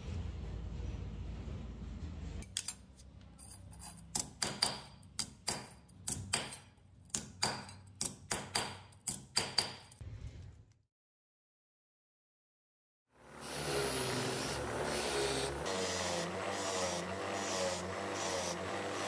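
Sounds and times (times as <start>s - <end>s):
hammer striking steel punch: 4.1s - 9.9s.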